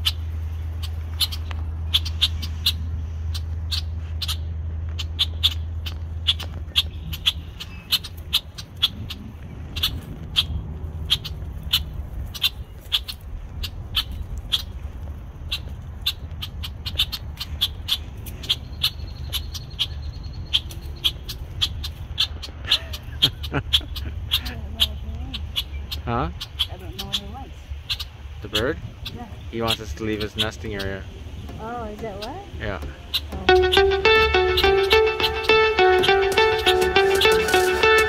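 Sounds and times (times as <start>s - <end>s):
bird alarm calls: 0.0s - 14.7s, 24.3s - 38.0s.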